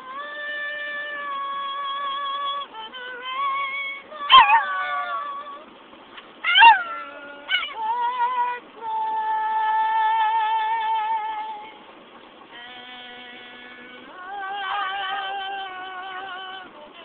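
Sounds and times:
woman singing: 0:00.0 - 0:05.8, 0:06.4 - 0:11.9, 0:12.5 - 0:17.0
dog howling: 0:04.2 - 0:05.6, 0:06.4 - 0:08.4.

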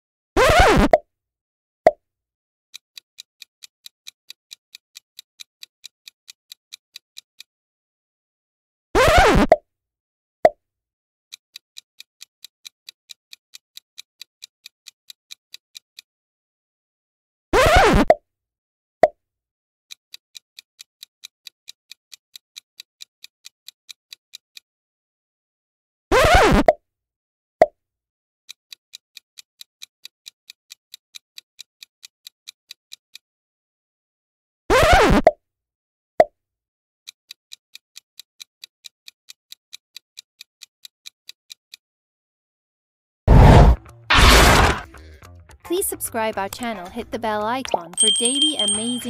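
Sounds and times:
pop sound effect: 0:00.4 - 0:01.0, 0:09.0 - 0:09.6, 0:26.3 - 0:26.8
popping sound effect: 0:00.4 - 0:01.0, 0:09.0 - 0:09.6
short pop: 0:43.3 - 0:44.9
countdown timer ticking: 0:44.8 - 0:49.0.

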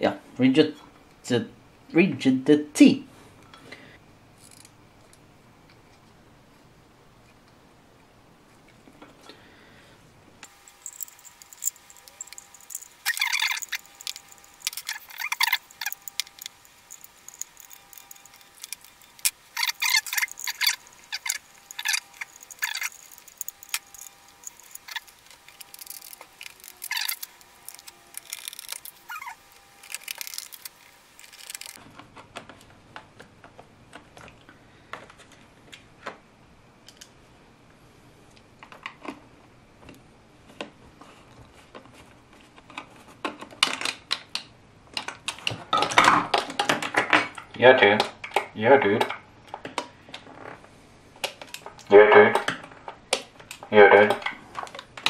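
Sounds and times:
plastic clicks and rattles: 0:10.7 - 0:34.4.

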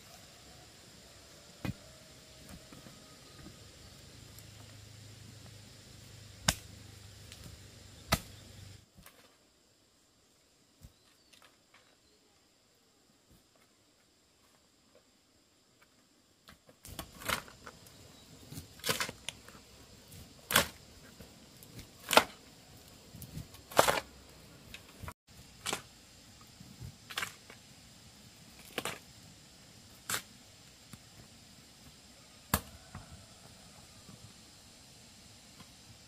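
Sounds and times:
digging tool chopping earth: 0:07.4 - 0:08.4, 0:18.5 - 0:19.5, 0:20.1 - 0:20.8, 0:21.7 - 0:22.4, 0:23.2 - 0:24.1.

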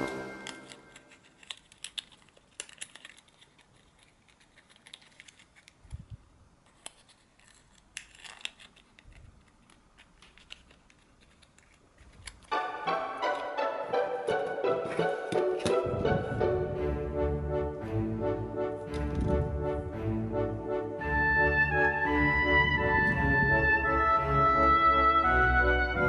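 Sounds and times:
paper rustling and folding: 0:00.0 - 0:13.6, 0:14.2 - 0:16.6.

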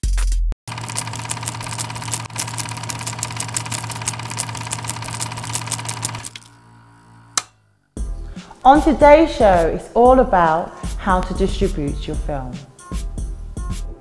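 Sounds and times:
film projector clatter: 0:00.7 - 0:06.6
projector motor hum and whine: 0:00.7 - 0:07.6.

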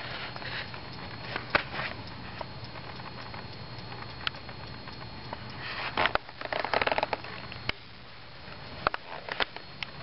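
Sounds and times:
faint high whine: 0:00.0 - 0:10.0.

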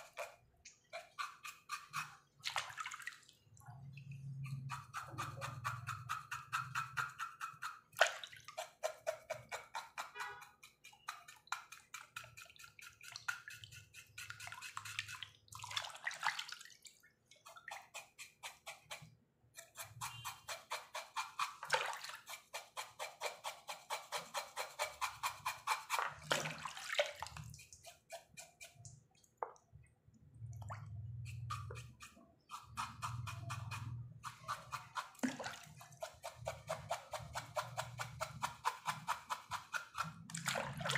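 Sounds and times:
water splashing and dripping: 0:02.3 - 0:04.4, 0:08.0 - 0:08.6, 0:12.4 - 0:17.8, 0:21.6 - 0:22.2, 0:25.9 - 0:27.9, 0:28.8 - 0:31.1, 0:35.1 - 0:36.0, 0:40.3 - 0:40.9
wet scrubbing strokes: 0:12.2 - 0:18.9, 0:21.0 - 0:29.2.

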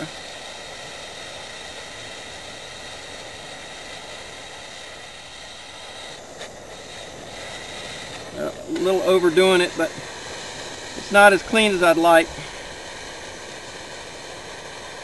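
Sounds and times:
gas torch flame hissing: 0:00.0 - 0:15.0.

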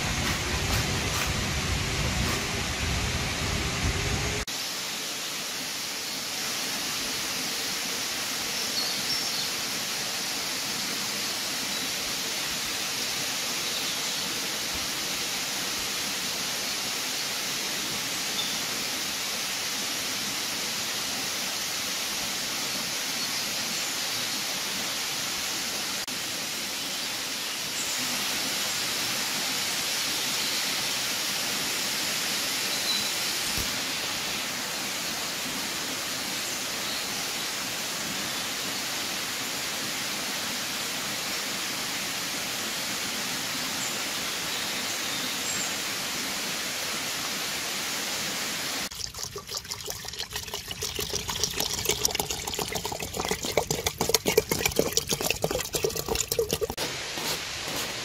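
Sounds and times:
choppy water sound: 0:00.0 - 0:04.6, 0:48.8 - 0:57.9
flowing water rushing: 0:00.0 - 0:58.0.

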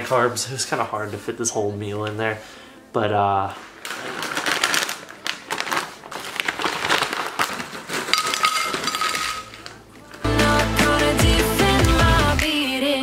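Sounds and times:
music: 0:00.0 - 0:07.1, 0:08.3 - 0:13.0
crinkly plastic bag rustling: 0:03.4 - 0:10.3
chips clattering onto ceramic plate: 0:03.9 - 0:10.0.

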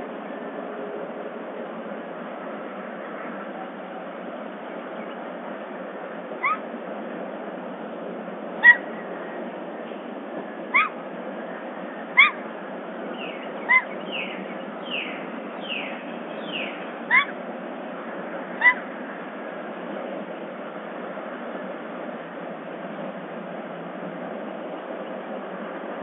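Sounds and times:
bobcat calling: 0:06.4 - 0:06.6, 0:08.6 - 0:09.0, 0:10.7 - 0:11.0, 0:12.1 - 0:12.4, 0:13.6 - 0:14.0, 0:17.1 - 0:17.4, 0:18.6 - 0:18.9
bird whistling: 0:08.6 - 0:08.8, 0:13.2 - 0:17.3.

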